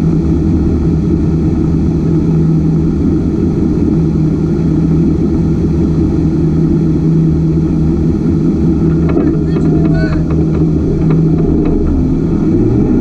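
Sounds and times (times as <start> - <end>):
race car engine idling: 0.0 - 13.0.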